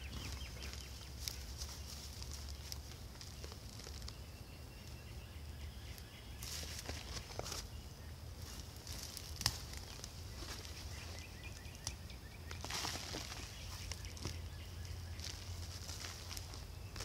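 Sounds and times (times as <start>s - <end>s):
hand scraping through soil: 8.4s - 14.5s, 15.1s - 17.0s.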